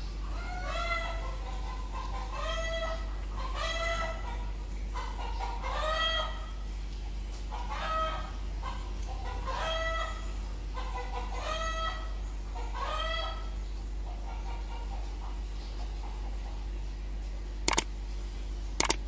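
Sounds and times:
chicken calling: 5.0s - 6.5s.

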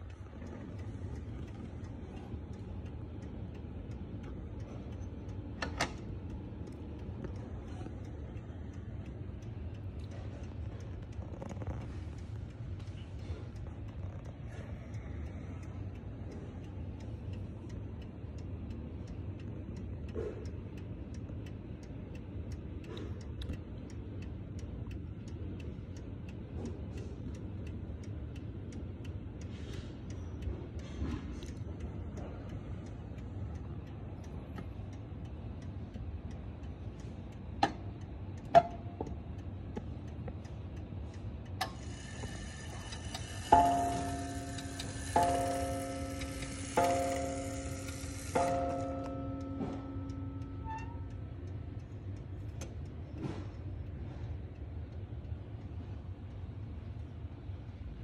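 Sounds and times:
clock ticking: 0.0s - 57.8s
louder clock clicks: 41.6s - 51.2s
clock gong stroke ringing: 41.8s - 51.3s.

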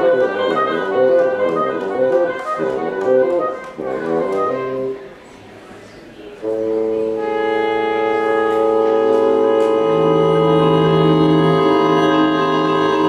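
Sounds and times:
strings holding a chord: 6.4s - 13.0s.

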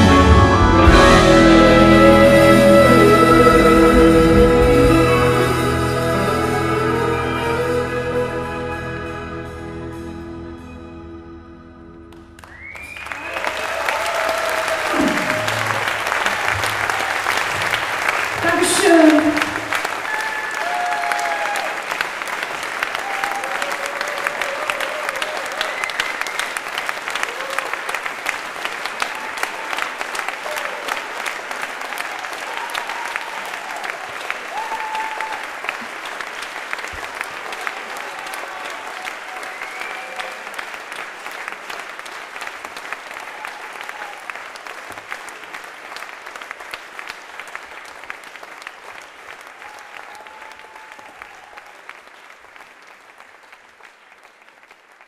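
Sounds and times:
audience applauding: 12.1s - 55.0s.

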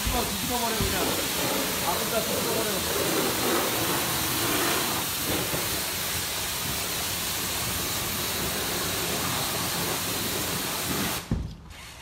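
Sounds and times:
pressure washer jet hissing: 0.0s - 12.0s
thump: 11.2s - 11.6s.

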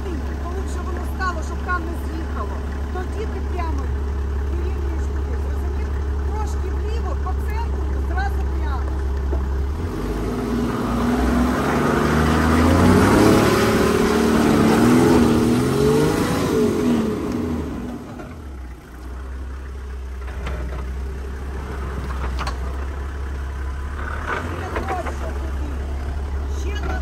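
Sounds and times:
engine revving under load: 7.5s - 18.6s, 20.1s - 27.0s.

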